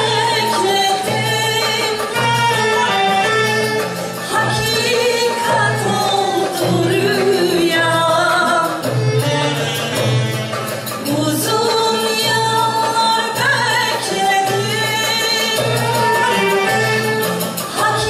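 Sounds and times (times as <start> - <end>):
woman singing into microphone: 0.0 - 9.8, 11.0 - 18.0
instrumental ensemble: 0.0 - 18.0.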